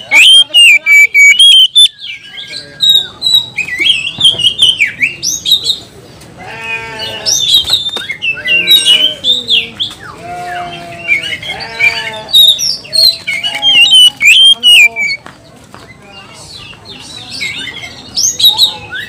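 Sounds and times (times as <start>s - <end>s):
lower drawn-out bird calls: 0.0s - 3.5s, 10.4s - 15.2s
bird singing whistles: 0.2s - 5.2s, 13.8s - 15.2s.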